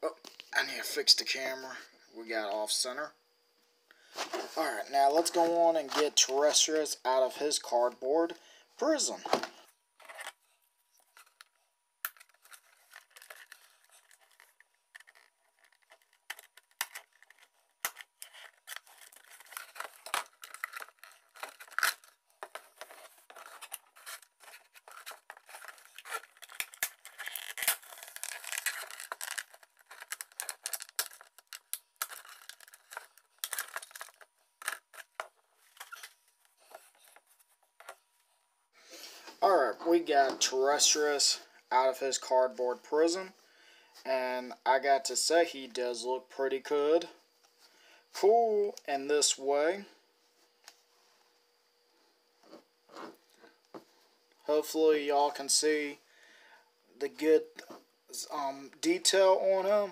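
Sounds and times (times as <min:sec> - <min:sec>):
packaging tearing and rustling: 0:12.1 - 0:38.0.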